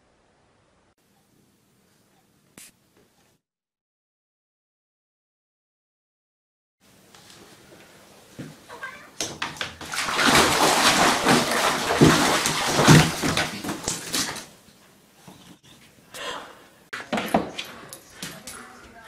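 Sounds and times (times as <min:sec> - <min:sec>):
water splashing in a bathtub: 0:08.4 - 0:14.6.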